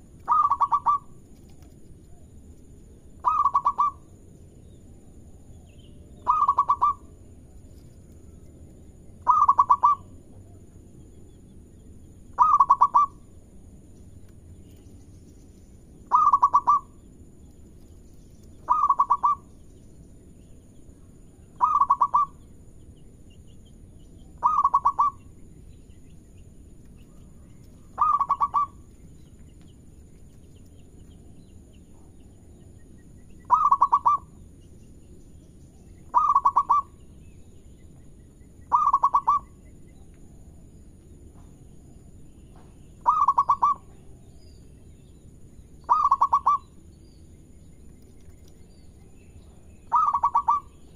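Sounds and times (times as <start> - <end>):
dove cooing: 0.0 - 1.2, 3.2 - 4.1, 6.2 - 7.1, 9.2 - 10.6, 12.3 - 13.3, 16.1 - 17.0, 18.6 - 19.5, 21.5 - 22.4, 24.4 - 25.2, 27.8 - 28.9, 33.4 - 34.4, 36.1 - 37.0, 38.7 - 39.6, 43.0 - 44.0, 45.8 - 46.6, 49.9 - 50.8.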